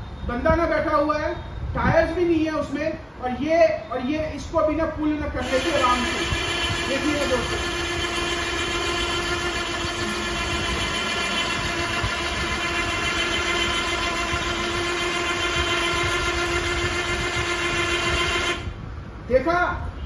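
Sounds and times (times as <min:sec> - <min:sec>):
electric winch whining under load: 0:05.4 - 0:18.9.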